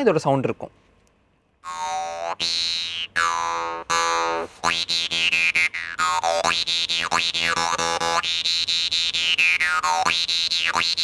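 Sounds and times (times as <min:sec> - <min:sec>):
jaw harp twanging drone: 0:01.6 - 0:11.0.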